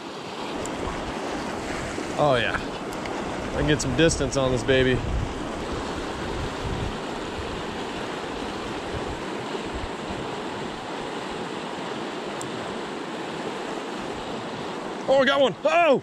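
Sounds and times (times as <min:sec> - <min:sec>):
river rushing over rapids: 0:00.0 - 0:16.0
wind rumble on microphone: 0:03.4 - 0:10.9.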